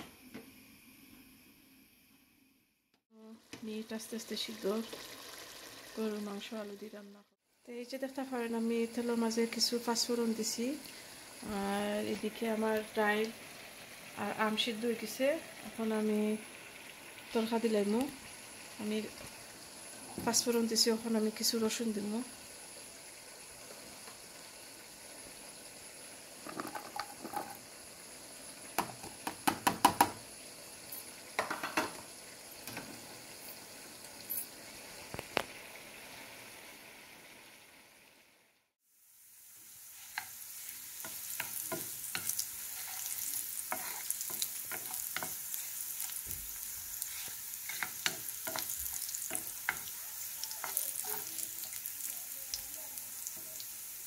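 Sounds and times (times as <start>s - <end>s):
spices sizzling in hot oil: 3.1s - 54.0s
wooden spoon stirring: 41.0s - 45.4s, 47.0s - 51.4s.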